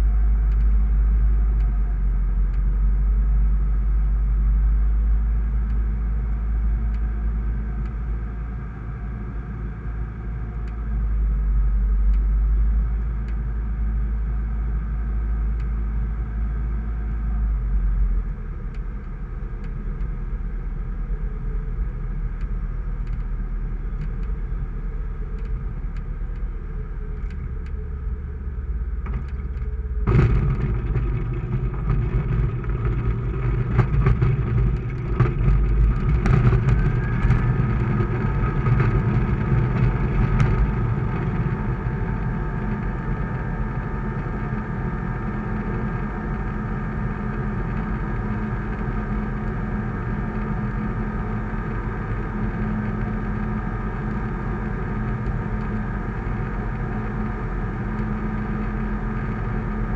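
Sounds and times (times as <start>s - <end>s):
knocks and rattles from ground roll: 29.1s - 40.7s
aircraft engine and propeller: 29.1s - 59.9s.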